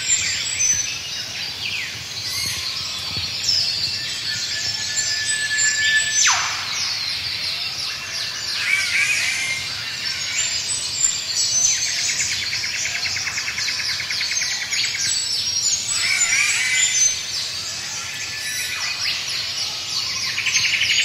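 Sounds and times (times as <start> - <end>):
birds chirping and whistling: 0.0 - 21.0
whip-crack bird call: 6.0 - 7.0.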